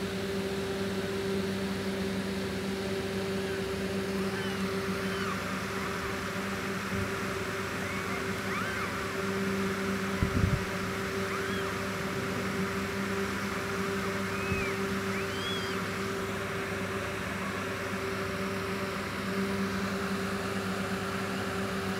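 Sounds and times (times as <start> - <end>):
steady hum: 0.0 - 21.9
kittens mewing: 3.4 - 5.7, 7.8 - 9.2, 11.1 - 12.1.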